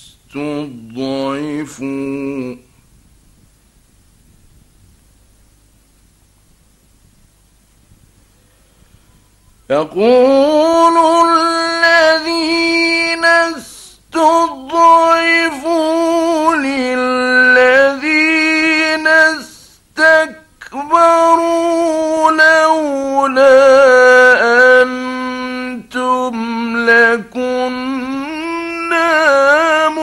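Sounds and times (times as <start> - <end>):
man reciting in melodic chant: 0.0 - 2.7, 9.7 - 30.0.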